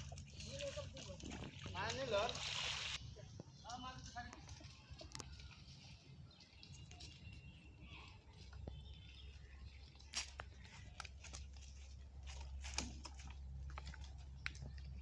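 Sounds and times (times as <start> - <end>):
birds chirping: 3.0 - 12.2
footsteps on leaves: 4.0 - 14.8.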